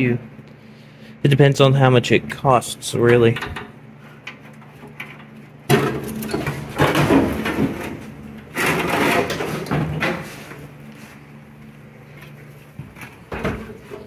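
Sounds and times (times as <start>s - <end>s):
metal fender scraping and crunching: 5.0s - 10.5s.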